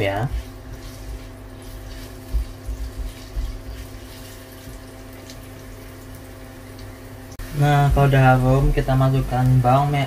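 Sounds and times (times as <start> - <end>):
spatula stirring in wok: 0.0 - 5.1
food sizzling in hot oil: 0.0 - 10.0
steady low hum: 0.0 - 10.0.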